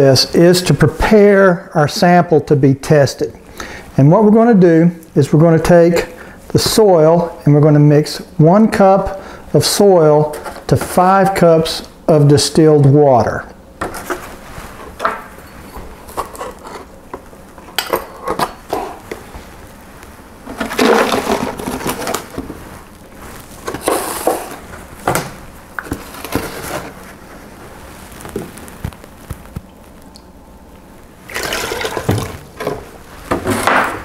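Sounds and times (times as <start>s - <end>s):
plastic bottles knocking and crinkling: 20.4s - 22.6s, 31.3s - 34.0s
water pouring: 31.3s - 32.8s.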